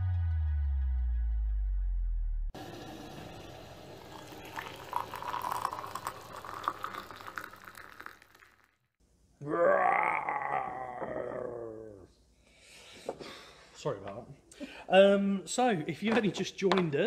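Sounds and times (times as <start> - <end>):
tea pouring into a cup: 2.6 - 8.7.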